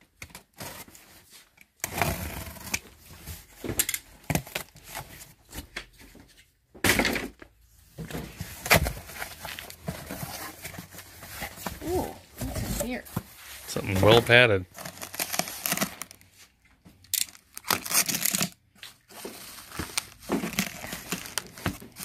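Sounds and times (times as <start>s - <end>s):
cardboard ripping and scraping: 1.8s - 3.0s, 13.7s - 16.2s, 17.6s - 22.0s.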